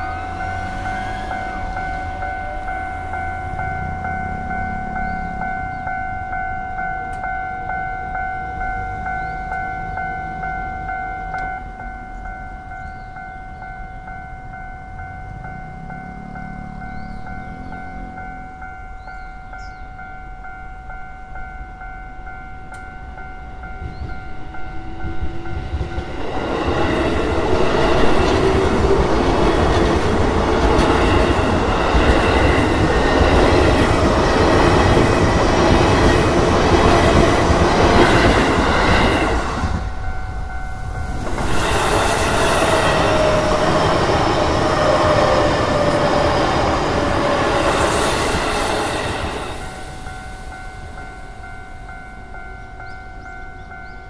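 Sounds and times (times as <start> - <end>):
level crossing warning bell: 0.0 - 54.0
train rumbling and clattering: 0.0 - 54.0
train wheel squeal: 23.6 - 54.0.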